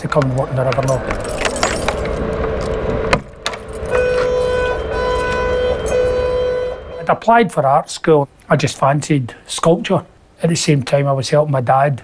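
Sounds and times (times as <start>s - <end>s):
steady hum: 0.0s - 9.5s
music with long held notes: 0.2s - 7.9s.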